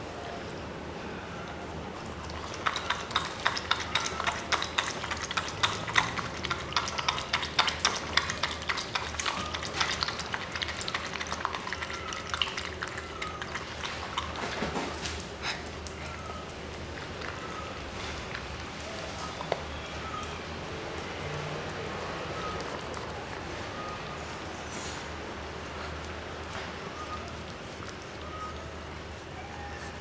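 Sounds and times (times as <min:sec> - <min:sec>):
dog licking and chewing food: 0:01.5 - 0:30.0.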